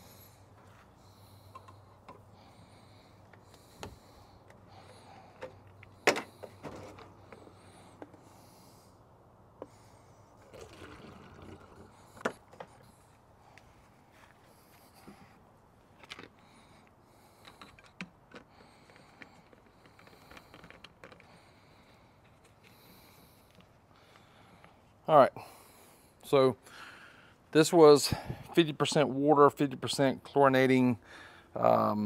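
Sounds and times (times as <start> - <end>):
liquid pouring through a funnel: 10.4 - 12.3.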